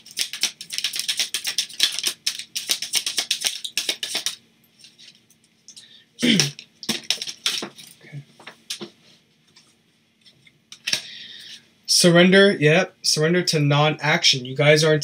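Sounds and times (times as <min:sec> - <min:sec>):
cards being shuffled: 0:00.0 - 0:05.3, 0:06.4 - 0:08.9.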